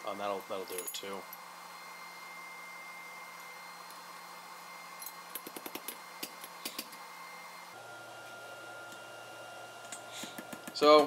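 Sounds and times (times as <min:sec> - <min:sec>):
forge whirring: 0:00.0 - 0:11.0
metallic clinks on an anvil: 0:00.7 - 0:01.1.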